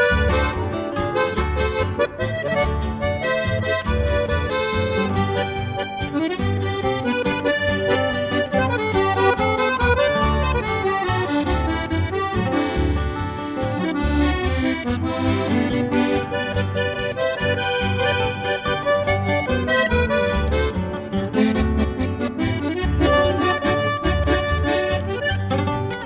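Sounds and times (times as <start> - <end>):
instrumental background music: 0.0 - 26.0.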